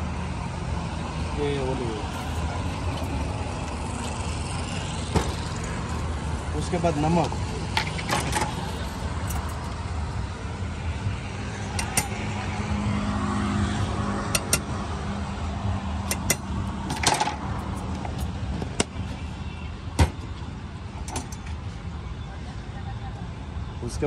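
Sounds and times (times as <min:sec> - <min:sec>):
vehicle engine rumble: 0:00.0 - 0:23.9.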